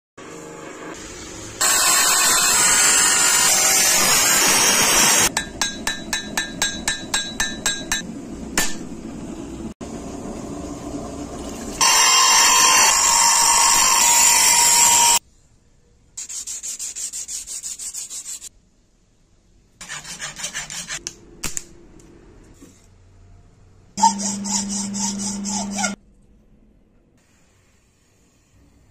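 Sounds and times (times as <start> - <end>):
steel being sanded: 11.8 - 15.2, 16.2 - 18.5, 19.8 - 21.0, 24.0 - 26.0
back-and-forth rubbing strokes: 16.2 - 18.5, 19.8 - 21.0.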